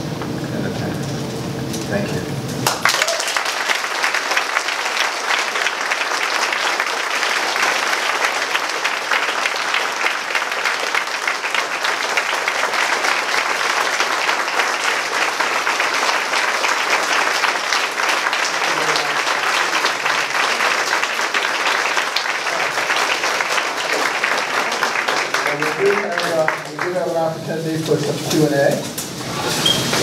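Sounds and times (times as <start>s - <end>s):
audience applauding: 2.6s - 30.0s.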